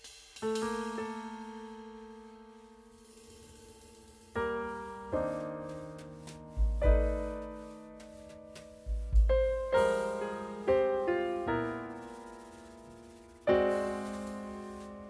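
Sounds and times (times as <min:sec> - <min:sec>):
slow keyboard chords: 0:05.2 - 0:11.4
deep bass hits: 0:06.6 - 0:07.4, 0:08.9 - 0:10.0.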